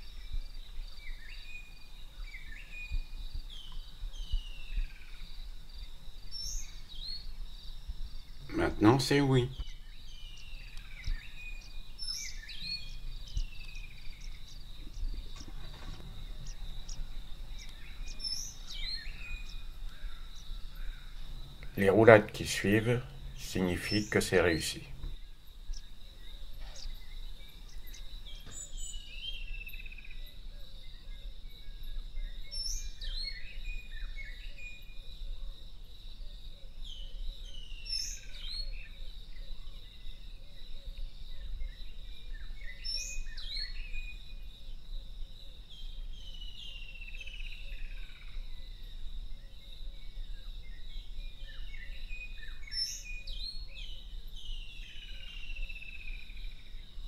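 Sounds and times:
high insect drone: 0.0s - 57.0s
bird whistling song: 1.0s - 5.3s, 6.3s - 7.3s, 9.5s - 30.3s, 32.2s - 35.0s, 36.8s - 39.0s, 41.4s - 44.4s, 50.7s - 56.5s
faint low rumble: 10.4s - 28.4s.

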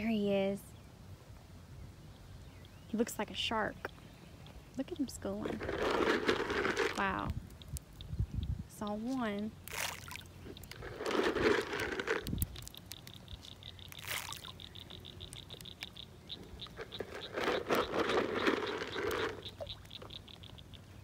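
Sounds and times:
fish splashing and slurping: 5.6s - 7.8s, 9.6s - 20.6s.

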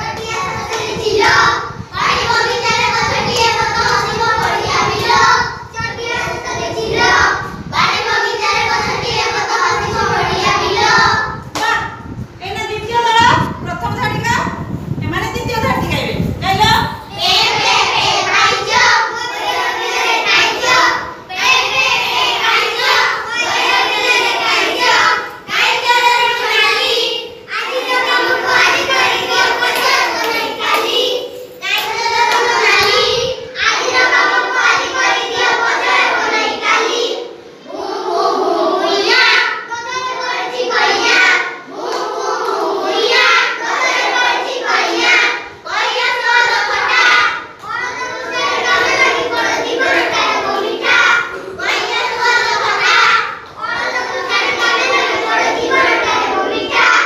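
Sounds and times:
children singing together: 0.0s - 11.5s, 17.1s - 57.0s.

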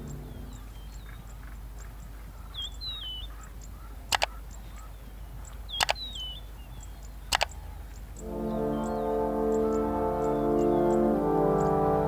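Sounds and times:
bird whistling: 2.4s - 3.4s, 5.7s - 7.5s, 8.2s - 11.8s
faint high ticking: 3.3s - 12.0s
mouse click sound effects: 4.1s - 4.4s.

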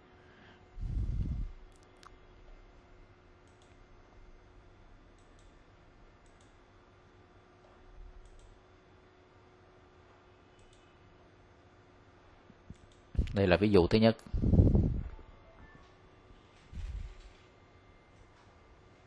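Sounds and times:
faint steady hum: 0.0s - 19.0s
computer mouse clicks: 3.4s - 3.8s, 5.1s - 5.6s, 6.2s - 6.6s, 8.2s - 8.6s, 10.5s - 11.0s, 12.7s - 13.2s.

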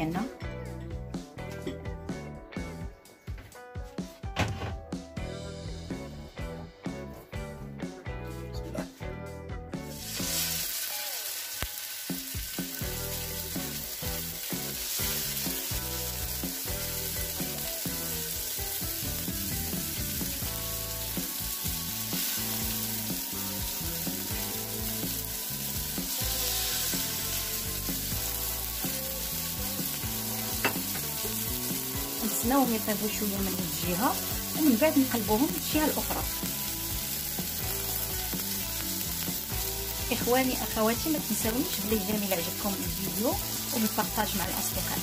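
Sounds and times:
fish sizzling in hot oil: 9.9s - 45.0s.

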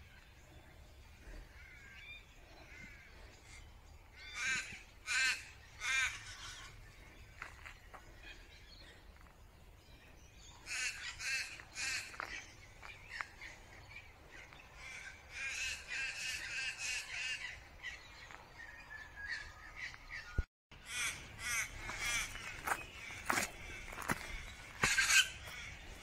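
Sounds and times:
crow-like bird cawing: 4.2s - 6.8s, 20.8s - 26.0s.

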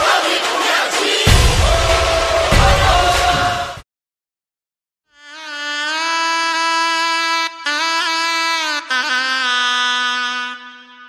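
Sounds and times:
heavy drum beats: 0.0s - 3.8s.

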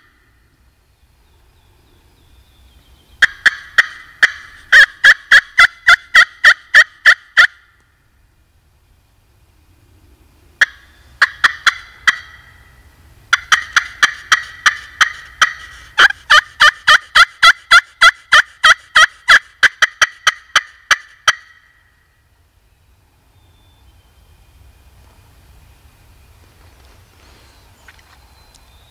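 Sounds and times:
turkey call yelps and cutts: 3.2s - 7.9s, 10.6s - 21.9s.

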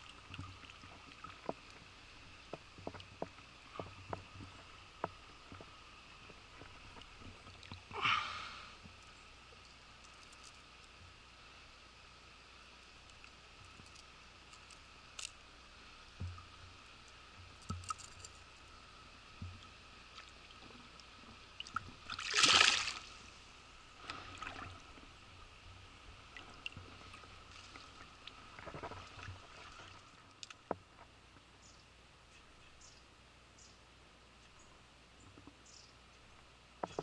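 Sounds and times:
fish splashing in water: 22.0s - 23.1s.

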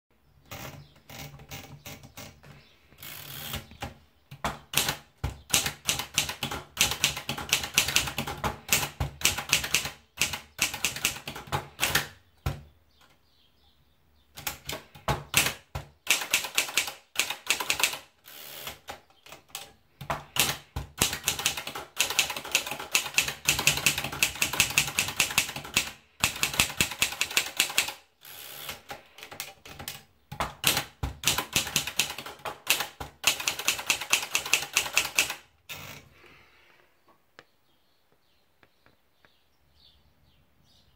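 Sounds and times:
typewriter typing: 3.0s - 12.6s, 14.4s - 36.0s.

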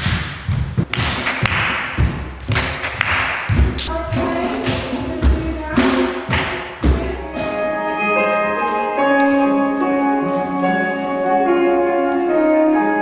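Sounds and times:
heavy thuds: 0.0s - 7.6s.

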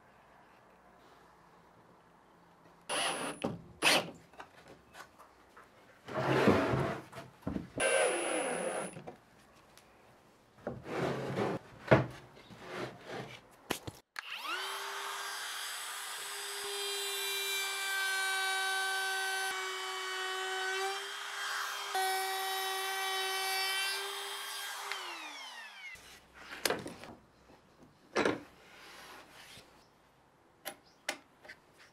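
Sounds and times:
trim router whining: 2.9s - 4.0s.

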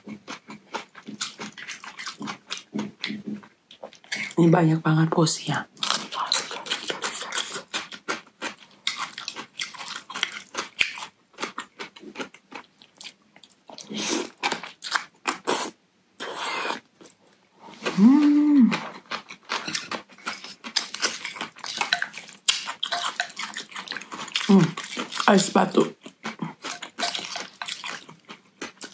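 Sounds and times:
wet chewing: 0.0s - 4.4s, 5.8s - 28.9s
slurping noodles: 15.4s - 16.8s
person humming: 17.9s - 18.9s.

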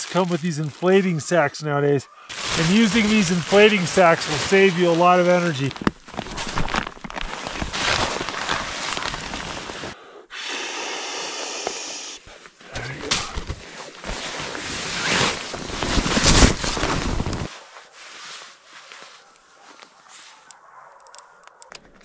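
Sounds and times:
fabric sack rustling: 2.3s - 10.0s, 13.4s - 19.3s.

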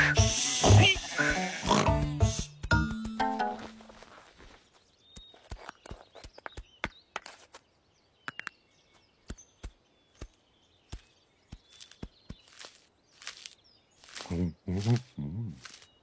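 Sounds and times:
hoof taps and clicks: 5.1s - 7.6s.

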